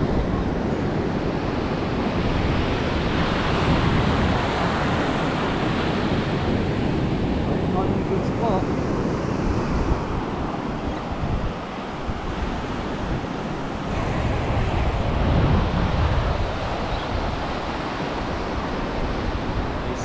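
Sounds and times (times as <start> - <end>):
ocean waves breaking on beach: 0.0 - 20.0
wind buffeting microphone: 0.0 - 20.0.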